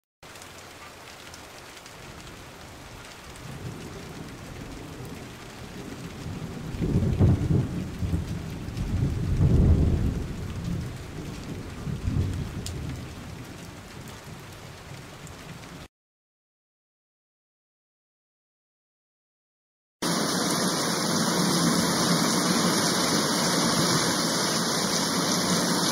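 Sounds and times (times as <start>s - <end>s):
steady rain falling: 0.2s - 15.9s, 20.0s - 25.9s
rolling thunder: 3.4s - 14.4s.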